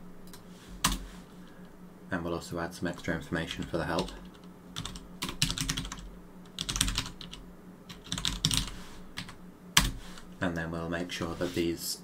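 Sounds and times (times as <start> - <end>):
computer keyboard typing: 3.6 - 10.0.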